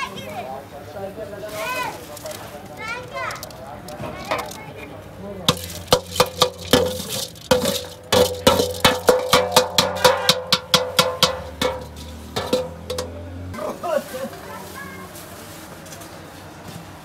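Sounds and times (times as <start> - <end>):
ladle scraping on steel tray: 5.5 - 13.3
sharp metallic knocks: 5.5 - 13.4.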